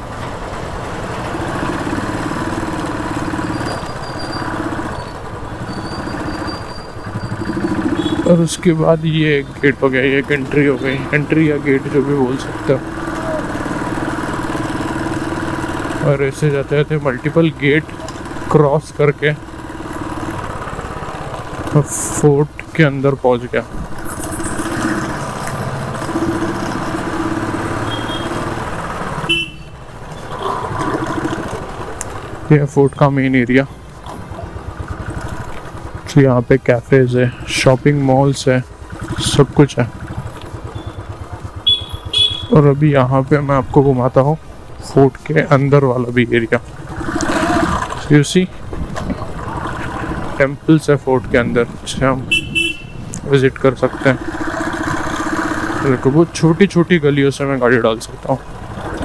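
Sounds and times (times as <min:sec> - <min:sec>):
motorcycle engine running: 0:00.4 - 0:59.0.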